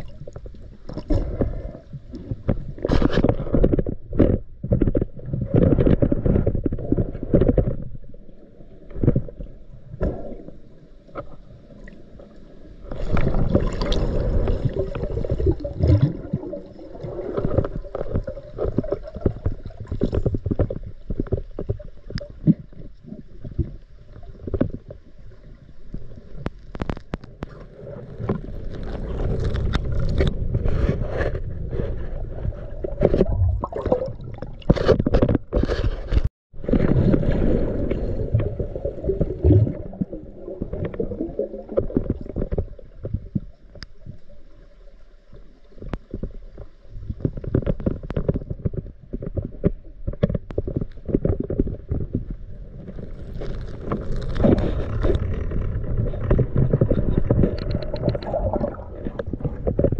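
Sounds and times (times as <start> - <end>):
small knocks and scrapes: 0.2 - 8.2, 17.1 - 33.4, 34.6 - 37.2, 40.0 - 44.2, 45.7 - 59.9
muffled underwater gurgling: 52.1 - 59.9.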